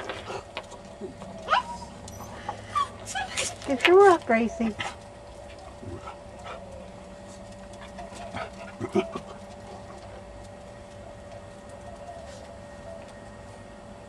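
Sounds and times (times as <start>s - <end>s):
faint steady hum: 0.0s - 14.0s
dog whimpering softly: 1.0s - 3.5s.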